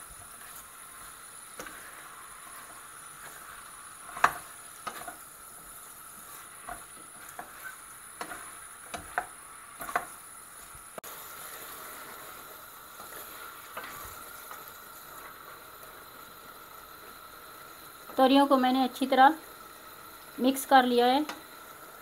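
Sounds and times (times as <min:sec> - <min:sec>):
spatula scraping saucepan: 0:00.0 - 0:10.2
frying sizzle: 0:00.0 - 0:22.0.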